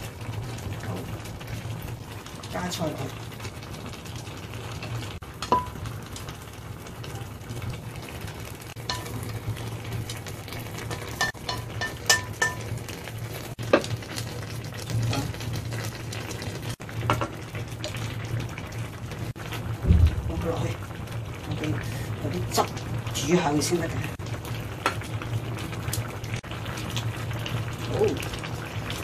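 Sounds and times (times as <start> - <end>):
pot bubbling hiss: 0.0 - 29.0
utensils clinking on plate and pot: 10.9 - 12.7.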